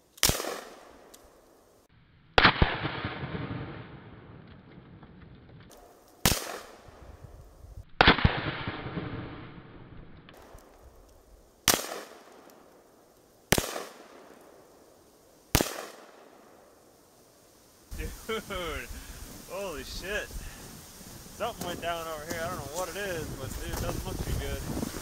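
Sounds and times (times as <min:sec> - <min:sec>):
rifle shots: 0:00.2 - 0:01.1, 0:02.4 - 0:04.3, 0:06.2 - 0:07.0, 0:08.0 - 0:09.6, 0:11.6 - 0:12.5, 0:13.5 - 0:14.4, 0:15.5 - 0:16.4.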